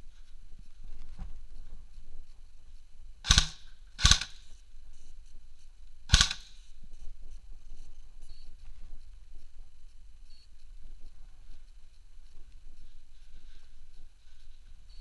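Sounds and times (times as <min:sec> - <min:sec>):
airsoft gun shots echoing: 0:03.2 - 0:04.5, 0:06.1 - 0:06.6.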